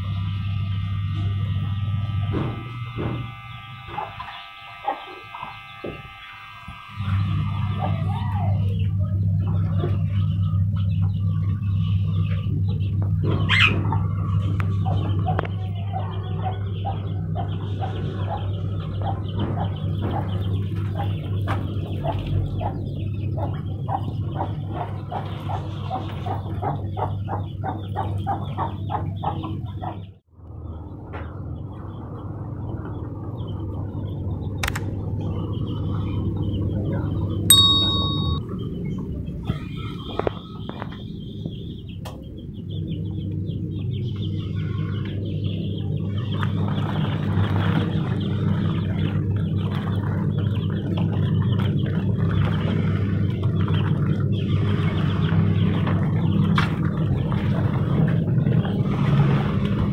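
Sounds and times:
low hum: 0:00.0 - 0:03.8
birds chirping and chattering: 0:02.3 - 0:06.5, 0:07.1 - 0:30.2, 0:39.0 - 0:59.9
chickens clucking: 0:03.9 - 0:05.7, 0:12.7 - 0:30.1.

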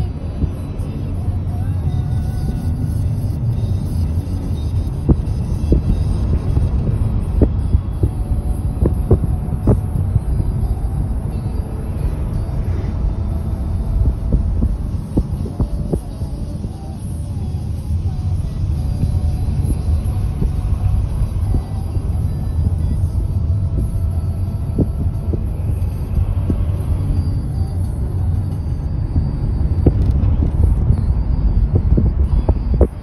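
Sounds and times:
vehicle road and engine rumble: 0:00.0 - 0:33.0.

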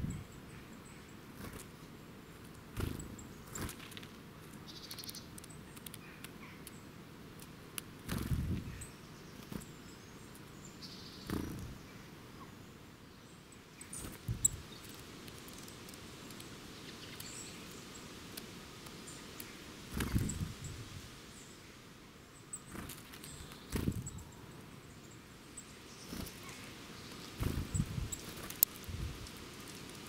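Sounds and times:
bird wing flutters: 0:02.8 - 0:04.2, 0:08.1 - 0:08.7, 0:11.2 - 0:11.8, 0:19.9 - 0:20.5, 0:22.7 - 0:24.1, 0:27.2 - 0:30.0
faint high bird chirps: 0:04.6 - 0:06.9, 0:22.4 - 0:28.4.

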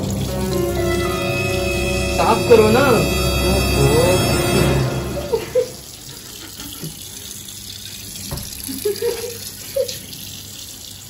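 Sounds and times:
tap running into washbasin: 0:06.0 - 0:11.0.

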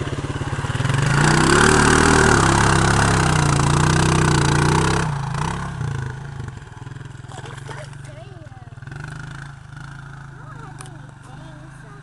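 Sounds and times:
quad engine revving: 0:00.0 - 0:12.0
water and mud splashing: 0:07.2 - 0:08.4.

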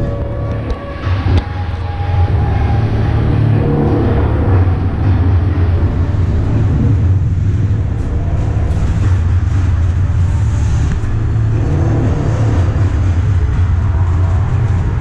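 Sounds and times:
machinery hum and rumble: 0:00.0 - 0:15.0.

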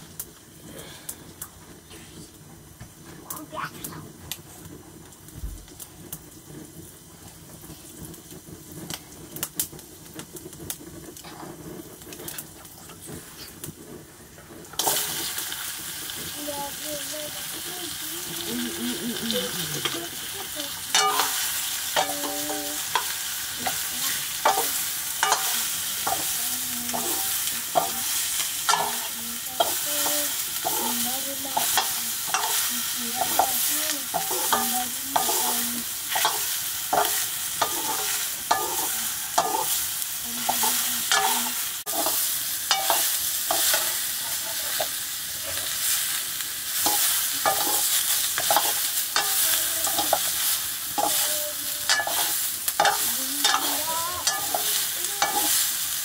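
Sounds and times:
pumpkin sizzling in a wok: 0:00.0 - 0:56.0
metal ladle scraping and clanking: 0:20.9 - 0:23.8, 0:24.4 - 0:26.2, 0:51.9 - 0:55.5.

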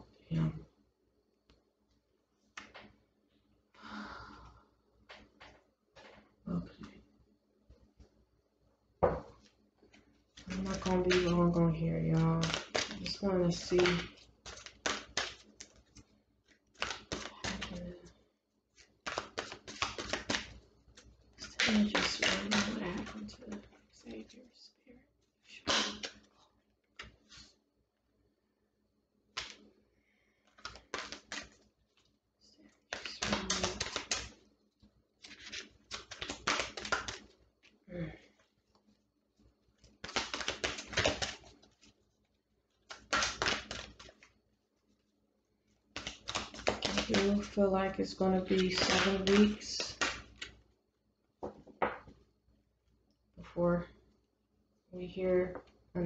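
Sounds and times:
tarot cards being shuffled: 0:02.5 - 0:03.0, 0:09.0 - 0:24.4, 0:25.6 - 0:27.6, 0:29.3 - 0:29.8, 0:30.4 - 0:39.0, 0:39.7 - 0:45.2, 0:45.8 - 0:50.6.

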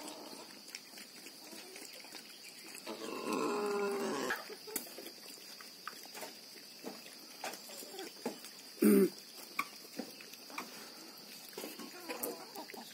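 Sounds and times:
animal call: 0:02.7 - 0:04.8.

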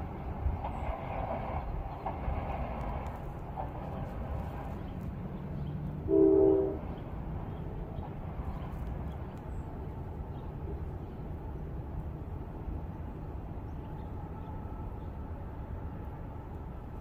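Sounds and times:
freight train rumbling: 0:00.0 - 0:17.0
locomotive horn blast: 0:06.1 - 0:06.9.

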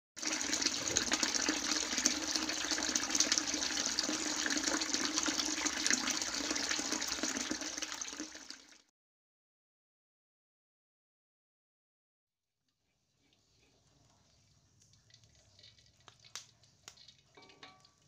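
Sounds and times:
water splashing and trickling: 0:00.2 - 0:08.9
water drips ticking: 0:14.3 - 0:18.0.

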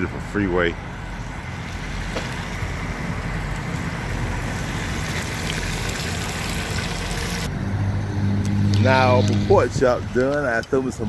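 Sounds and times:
low traffic rumble: 0:00.0 - 0:11.0.

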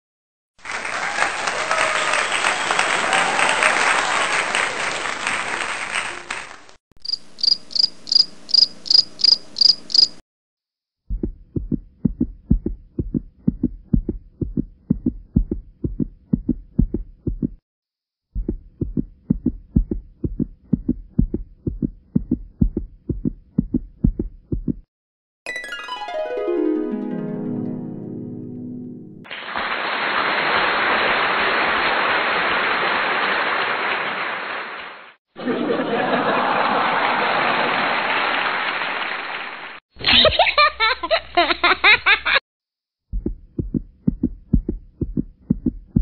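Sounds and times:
low thumping beat: 0:11.1 - 0:17.6, 0:18.3 - 0:24.9, 0:43.1 - 0:46.0.

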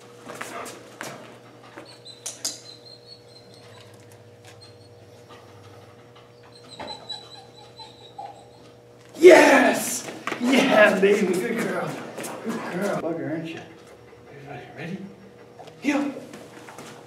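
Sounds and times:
dog whining: 0:01.6 - 0:09.8.

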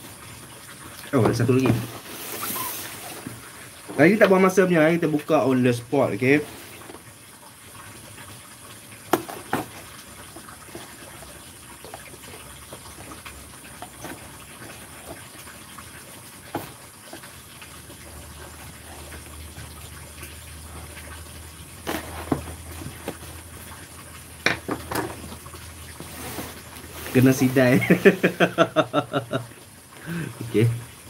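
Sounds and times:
faint hiss: 0:00.8 - 0:07.1, 0:26.0 - 0:30.9
cardboard box clicks and knocks: 0:21.8 - 0:23.2.

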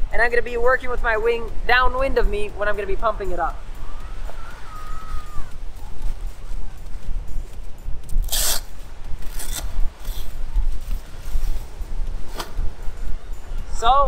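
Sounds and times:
wind buffeting microphone: 0:00.0 - 0:14.0
bag zipper pulled open: 0:08.2 - 0:10.4.

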